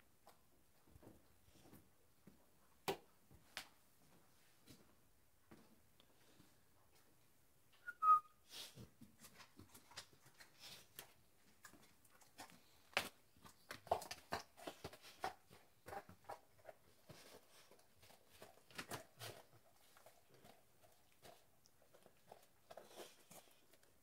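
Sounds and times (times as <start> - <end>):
dog eating: 9.4 - 24.0.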